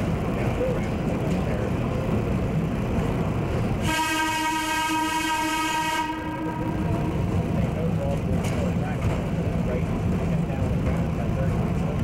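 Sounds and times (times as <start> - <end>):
train horn blast: 3.8 - 7.3
low rumble: 6.1 - 12.0.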